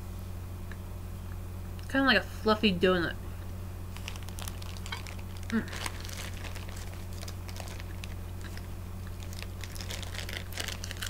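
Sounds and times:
steady low hum: 0:00.0 - 0:11.0
person chewing soft bread: 0:03.9 - 0:11.0
plastic bag rustling: 0:03.9 - 0:11.0.

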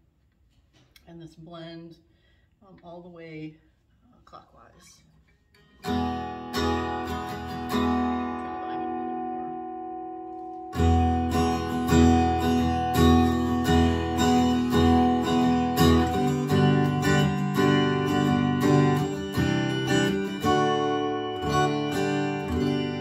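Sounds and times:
electric acoustic guitar strumming: 0:05.6 - 0:23.0.

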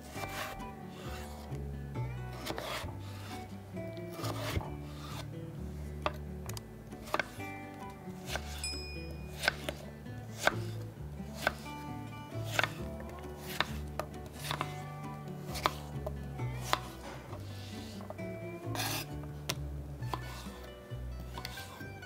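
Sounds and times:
knife chopping on wooden board: 0:04.2 - 0:05.2, 0:07.0 - 0:07.4, 0:08.2 - 0:08.7, 0:09.3 - 0:10.6, 0:11.4 - 0:11.7, 0:12.5 - 0:14.8, 0:15.5 - 0:16.0, 0:16.6 - 0:18.1, 0:18.7 - 0:20.6, 0:21.4 - 0:21.8.

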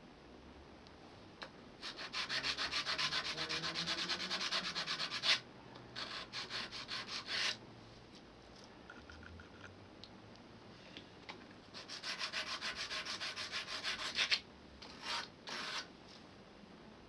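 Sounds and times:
sanding on sandpaper: 0:01.8 - 0:05.4, 0:06.0 - 0:07.6, 0:11.8 - 0:14.4, 0:15.0 - 0:15.9.

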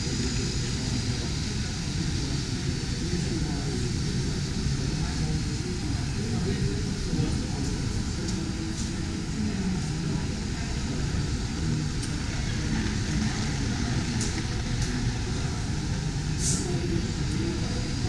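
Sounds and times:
exhibition hall rumble: 0:00.0 - 0:18.0.

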